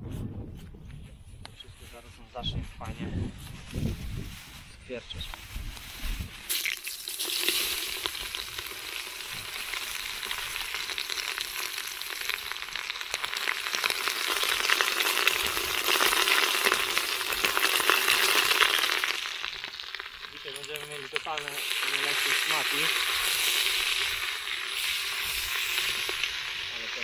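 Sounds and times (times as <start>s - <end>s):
vegetables sizzling in hot oil: 6.5s - 27.0s.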